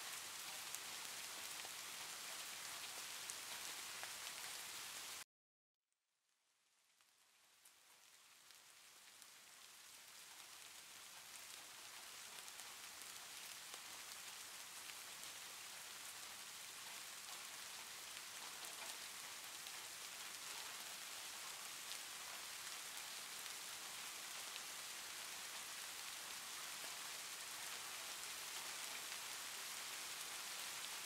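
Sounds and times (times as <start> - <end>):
rain-like hiss: 0.0 - 5.2, 6.7 - 31.0
faint scattered ticks: 16.8 - 23.6.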